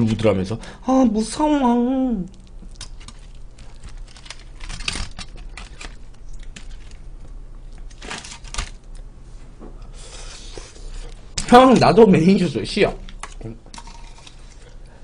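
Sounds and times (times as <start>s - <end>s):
aluminium foil crinkling: 2.3s - 9.0s.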